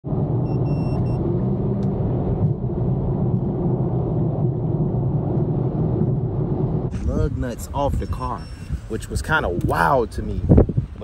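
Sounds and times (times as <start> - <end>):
car engine and tyre rumble: 0.0 - 11.0
short high electronic beep: 0.4 - 1.2, 7.9 - 8.8.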